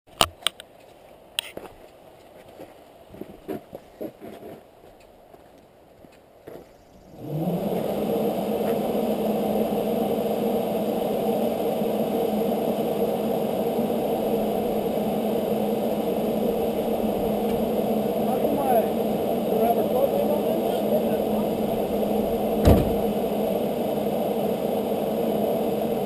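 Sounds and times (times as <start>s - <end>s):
engine starting and idling: 7.1s - 26.0s.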